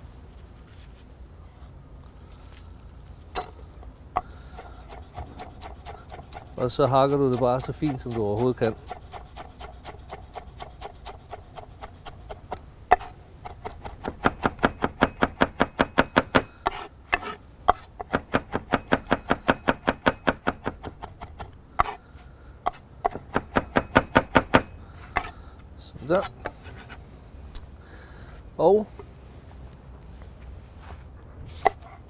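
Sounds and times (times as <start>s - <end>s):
knife chopping on wooden board: 4.2s - 22.0s, 22.7s - 25.3s.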